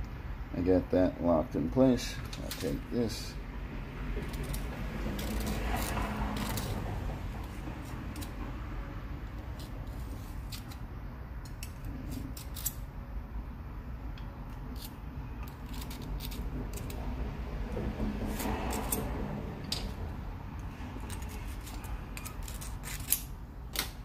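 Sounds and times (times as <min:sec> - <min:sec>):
low background hum: 0:00.0 - 0:24.0
rustle or scrape: 0:04.2 - 0:08.3, 0:09.5 - 0:10.8.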